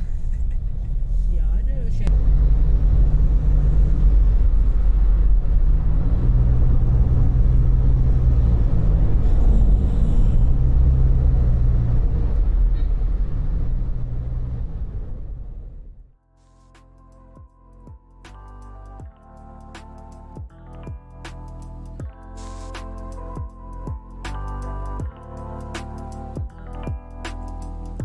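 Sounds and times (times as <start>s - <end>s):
car interior road rumble: 0.0s - 16.1s.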